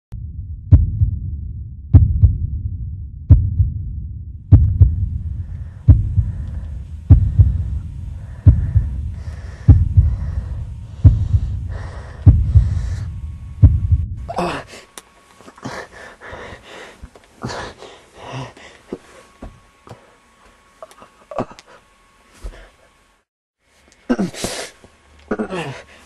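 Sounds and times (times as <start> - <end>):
low rumble: 0.1 - 14.4
heartbeat thumps: 0.2 - 14.3.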